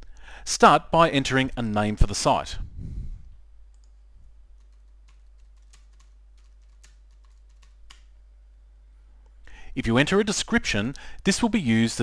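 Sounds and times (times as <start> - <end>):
faint keyboard typing: 3.7 - 8.1.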